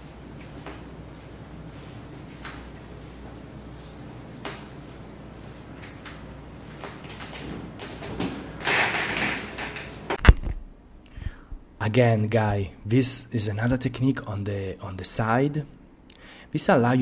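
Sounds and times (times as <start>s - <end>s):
massage table rustling and creaking: 0.0s - 10.6s.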